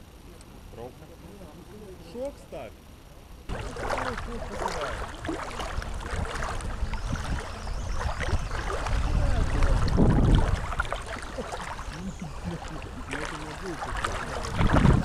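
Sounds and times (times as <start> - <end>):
wind buffeting microphone: 3.5 - 15.0.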